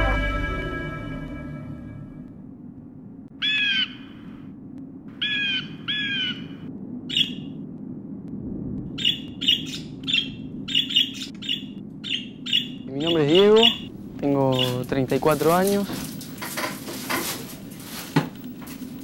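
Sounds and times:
parakeets squawking: 3.4 - 4.2, 9.0 - 13.9.

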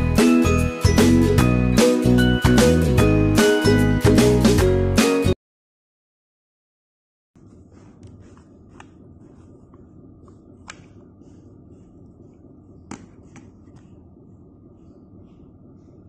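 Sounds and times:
room hiss and hum: 7.4 - 16.0.

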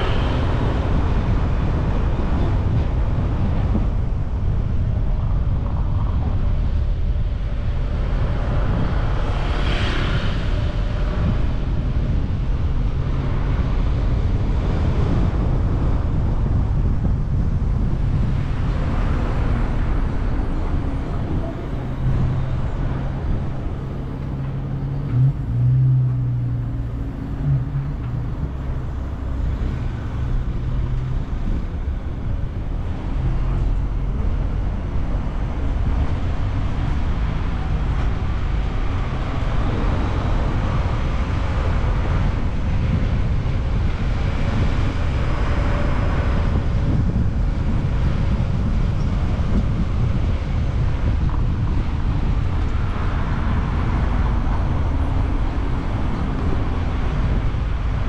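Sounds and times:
car engine and road noise: 0.0 - 58.0.

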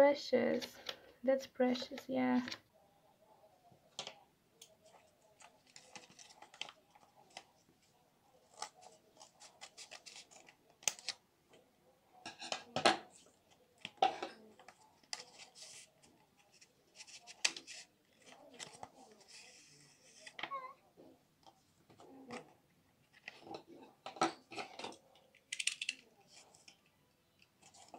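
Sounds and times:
paper rustling: 4.8 - 7.5, 8.4 - 11.2, 13.1 - 20.4.

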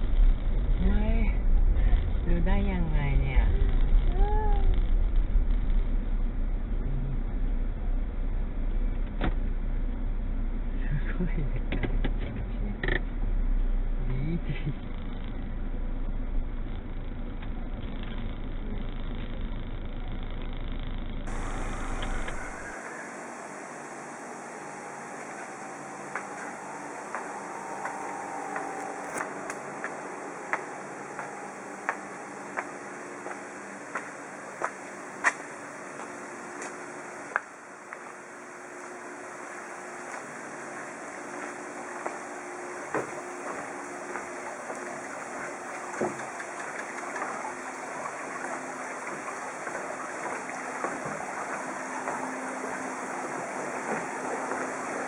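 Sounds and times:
running water: 21.3 - 55.0
steady hiss: 21.3 - 55.0
footsteps on outdoor steps: 26.1 - 38.2, 42.9 - 44.9.

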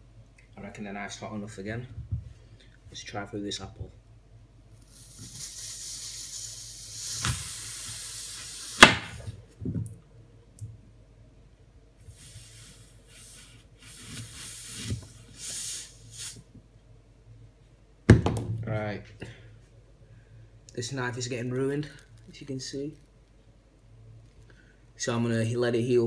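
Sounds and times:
hot knife sizzling through apple: 4.8 - 9.3.

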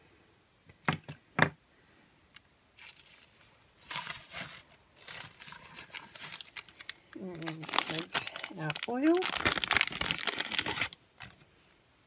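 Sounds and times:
packaging rustling and crinkling: 2.8 - 11.8.

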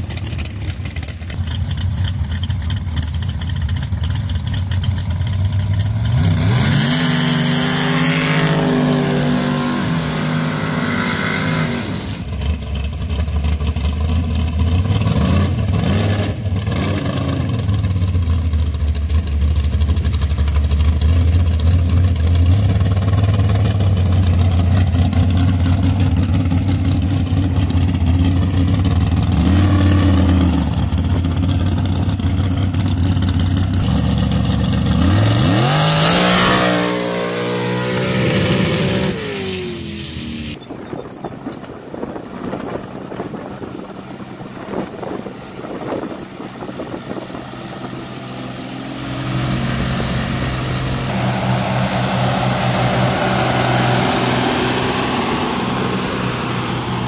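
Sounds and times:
dragster engine idling: 0.0 - 6.1, 12.2 - 15.0, 17.5 - 35.1
dragster engine revving: 0.0 - 40.6, 41.4 - 57.0.

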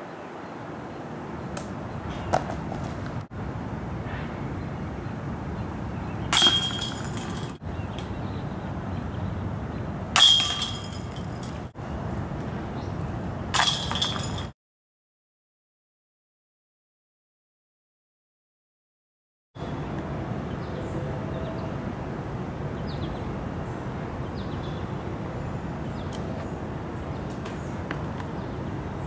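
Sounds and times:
disc hitting metal chains: 6.3 - 7.6, 10.2 - 11.7, 13.6 - 14.5.

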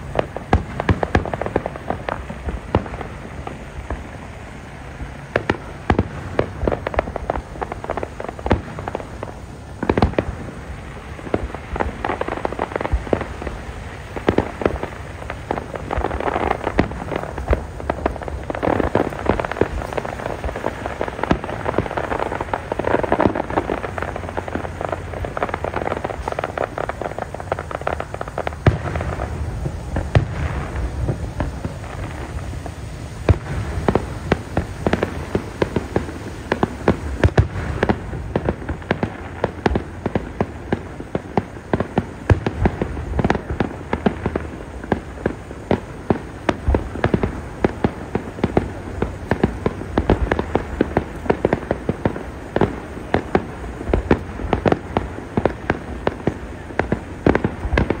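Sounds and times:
fireworks crackling and banging: 0.0 - 58.0
loud fireworks crack: 0.0 - 58.0.

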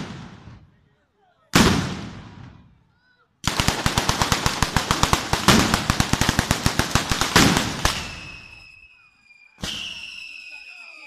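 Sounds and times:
firecrackers banging: 3.4 - 8.8, 9.6 - 11.0
high whistle: 7.9 - 11.0.

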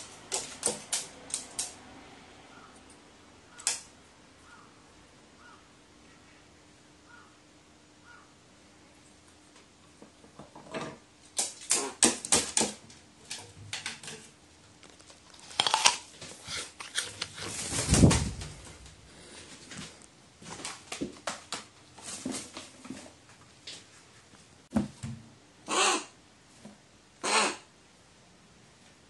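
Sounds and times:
crow claws and beak tapping: 0.0 - 1.8, 3.5 - 3.9, 11.4 - 15.9.

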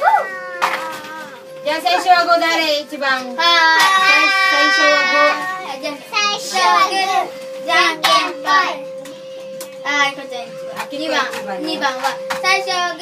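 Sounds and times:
children's voices: 3.4 - 8.9.

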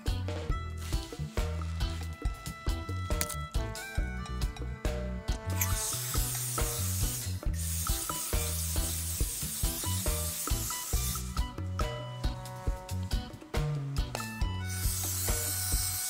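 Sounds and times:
background music: 0.0 - 16.0
aerosol spray hiss: 5.6 - 11.4, 14.7 - 16.0.

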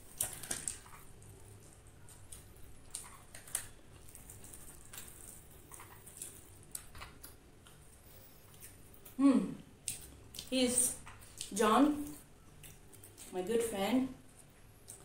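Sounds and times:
crispy chicken tearing: 0.0 - 7.4
chewing crunchy food: 0.0 - 9.2, 9.8 - 13.4, 14.3 - 15.0.

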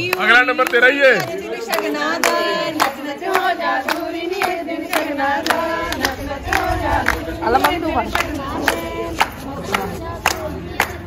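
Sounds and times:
women singing folk song: 0.0 - 0.5, 1.2 - 11.0
hand claps: 0.0 - 11.0.

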